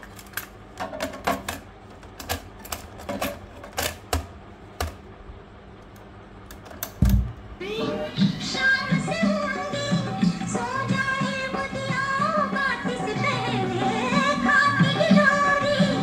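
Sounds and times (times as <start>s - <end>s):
low hum from player: 0.0s - 16.0s
cassette deck clicks and knocks: 6.5s - 7.4s.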